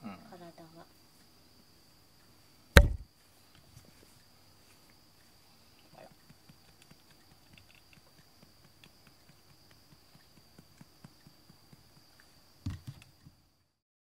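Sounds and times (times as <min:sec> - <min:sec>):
thump: 0:02.8 - 0:03.0.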